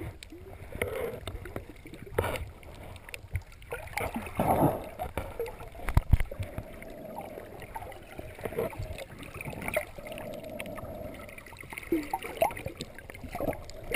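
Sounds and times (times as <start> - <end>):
muffled underwater noise: 0.0 - 13.9.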